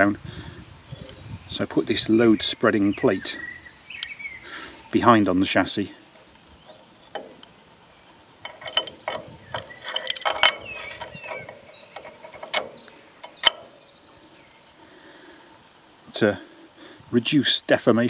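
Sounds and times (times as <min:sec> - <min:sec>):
metallic clicks and scrapes: 0:06.0 - 0:14.4.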